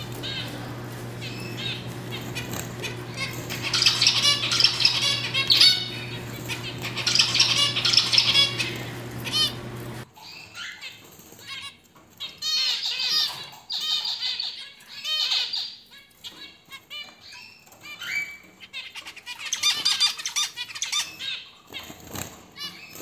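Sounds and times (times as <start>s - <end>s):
wing flutters: 0.0s - 10.1s
finches calling and singing: 0.0s - 10.8s.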